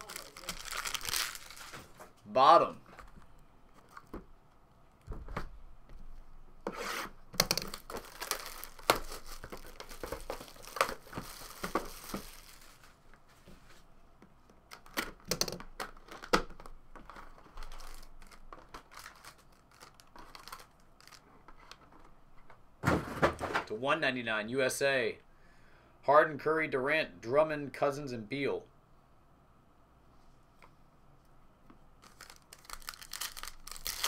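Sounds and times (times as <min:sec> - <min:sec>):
shrink wrap tearing and crackling: 0:00.0 - 0:01.8, 0:07.4 - 0:13.0, 0:17.3 - 0:21.3, 0:32.0 - 0:34.0
box being handled and opened: 0:07.0 - 0:12.9.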